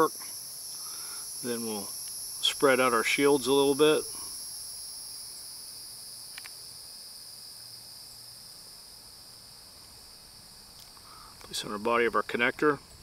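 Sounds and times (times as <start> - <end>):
insects chirring: 0.0 - 13.0
faint click: 6.3 - 6.6.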